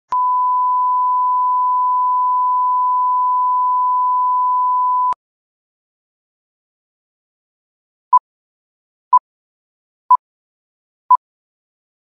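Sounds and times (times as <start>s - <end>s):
steady test tone beep: 0.1s - 5.2s.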